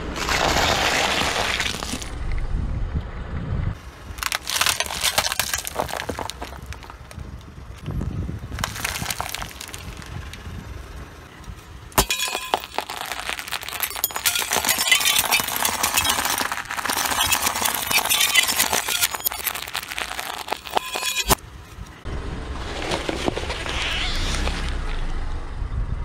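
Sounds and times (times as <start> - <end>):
tyre crushing candy: 0.0 - 2.2, 4.1 - 7.5, 8.5 - 10.4, 12.0 - 21.4
tyre crushing light tube: 4.2 - 7.2, 12.0 - 21.4.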